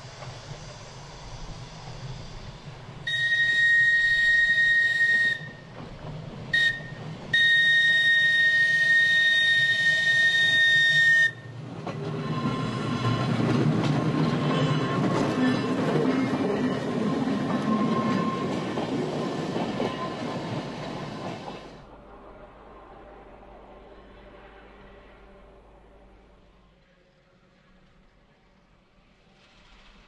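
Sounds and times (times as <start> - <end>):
tram wheels rumbling on rails: 0.0 - 30.0
tram whistle blasts: 3.0 - 5.8, 6.5 - 11.5, 12.1 - 13.5.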